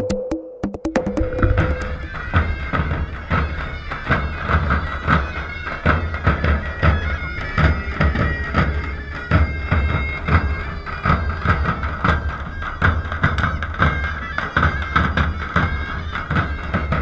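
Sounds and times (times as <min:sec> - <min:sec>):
bass drum beats: 0:00.0 - 0:02.9
reed wind instrument melody: 0:00.0 - 0:17.0.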